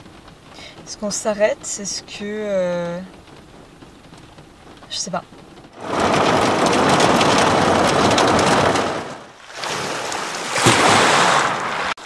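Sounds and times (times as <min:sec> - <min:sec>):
heavy rain on van roof: 0:00.0 - 0:12.0
waves washing over pebbles: 0:05.8 - 0:12.0.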